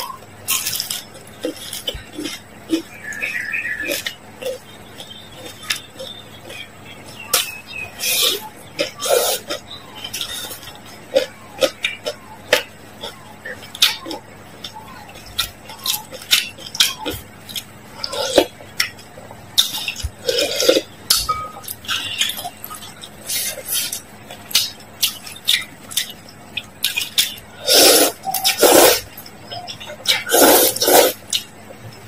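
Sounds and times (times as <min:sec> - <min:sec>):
noodle slurps: 0:27.6 - 0:29.0, 0:30.2 - 0:31.2.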